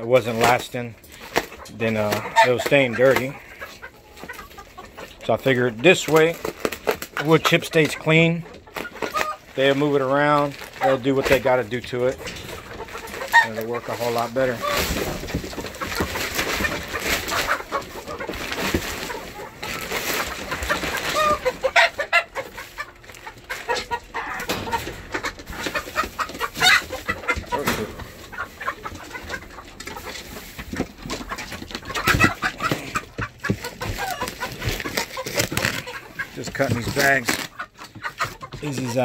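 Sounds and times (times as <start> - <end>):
chickens clucking: 0.0 - 39.0
bags rustling and knocking: 9.4 - 21.2.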